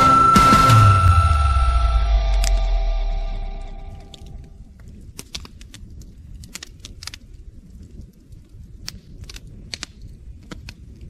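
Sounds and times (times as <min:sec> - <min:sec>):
campfire crackling and popping: 0:04.0 - 0:11.0.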